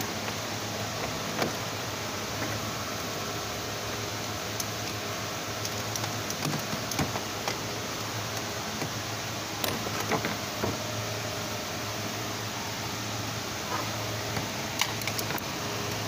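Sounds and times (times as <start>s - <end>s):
background hum: 0.0s - 16.0s
drive belt clicks and taps: 5.6s - 9.0s, 9.6s - 10.8s.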